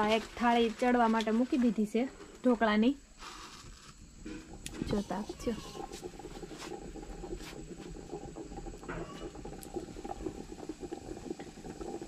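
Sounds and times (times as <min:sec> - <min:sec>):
firewood crackling and popping: 0:00.0 - 0:12.0.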